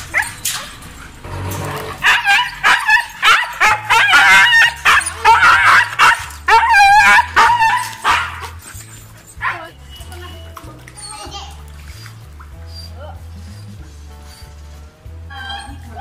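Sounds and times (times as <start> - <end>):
dog howling calls: 2.0 - 8.6.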